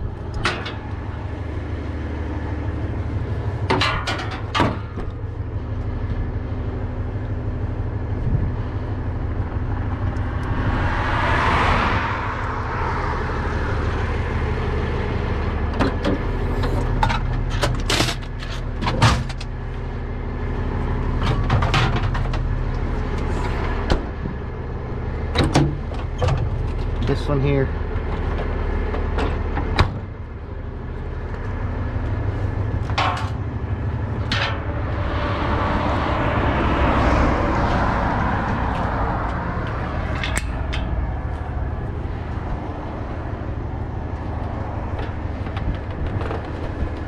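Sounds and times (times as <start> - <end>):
diesel truck engine idling: 0.0 - 10.8, 12.1 - 47.0
rushing whoosh: 10.2 - 13.8.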